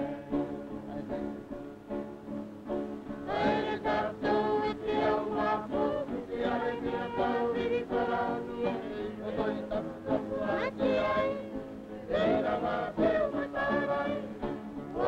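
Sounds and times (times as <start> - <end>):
guitar: 0.0 - 15.0
group singing: 3.3 - 15.0.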